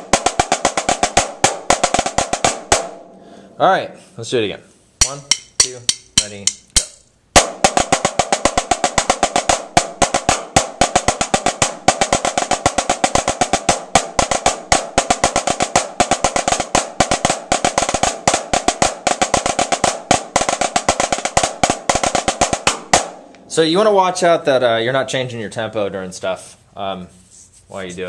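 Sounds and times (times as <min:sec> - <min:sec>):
snare drums playing: 0:00.0 - 0:03.2, 0:05.0 - 0:23.6.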